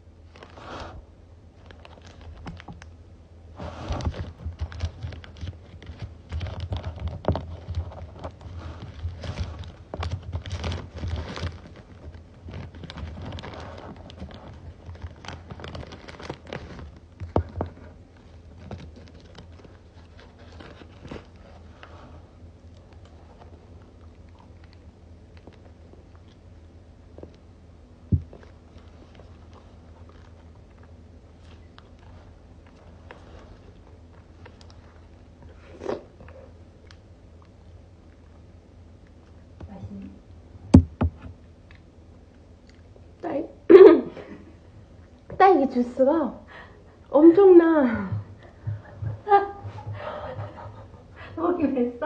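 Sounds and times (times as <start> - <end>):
wrapper crinkling and rustling: 1.6 - 2.9, 4.0 - 21.5.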